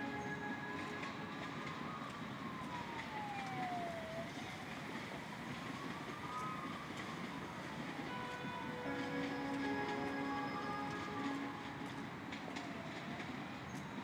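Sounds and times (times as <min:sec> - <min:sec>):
siren wailing: 0:00.0 - 0:14.0
steady background hiss: 0:05.7 - 0:12.3.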